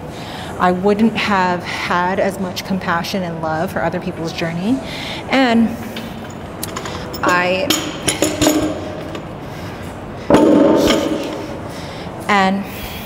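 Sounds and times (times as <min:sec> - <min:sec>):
metal gym equipment clinking: 0:06.0 - 0:09.4, 0:10.3 - 0:11.6.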